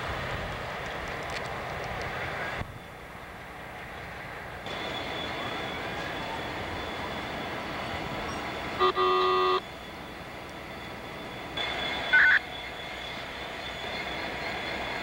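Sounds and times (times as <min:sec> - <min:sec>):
steady background noise: 0:00.0 - 0:15.0
locomotive air horn toot: 0:08.8 - 0:09.6, 0:12.0 - 0:12.5.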